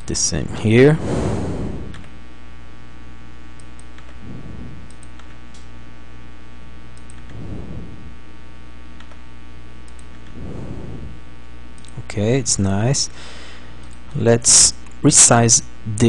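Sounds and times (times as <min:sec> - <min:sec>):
electrical mains hum: 0:00.0 - 0:16.0
faint clicks: 0:07.0 - 0:07.4, 0:13.8 - 0:14.2.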